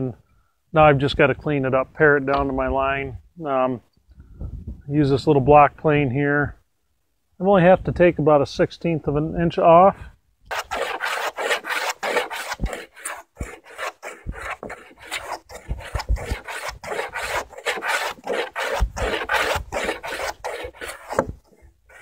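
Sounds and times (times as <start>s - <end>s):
hand plane shaving wood: 10.5s - 22.0s.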